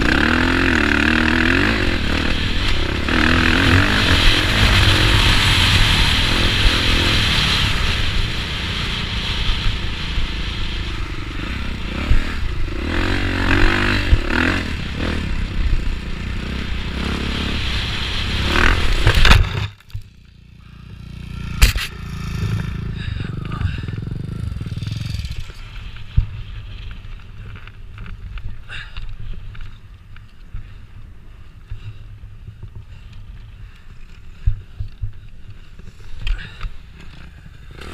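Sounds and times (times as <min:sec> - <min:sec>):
wind noise: 0:00.0 - 0:19.8, 0:21.0 - 0:37.9
motocross bike engine running hard: 0:00.0 - 0:29.0, 0:29.8 - 0:37.9
low rumble: 0:00.0 - 0:33.0.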